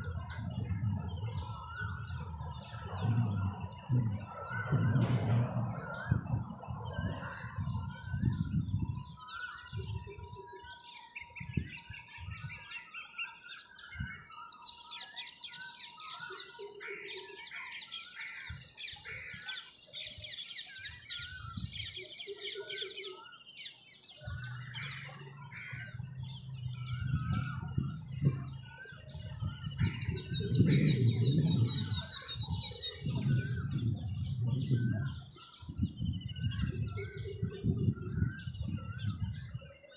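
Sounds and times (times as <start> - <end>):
low rumble: 0.0 - 9.0, 24.3 - 38.6
birds chirping and trilling: 0.0 - 39.9.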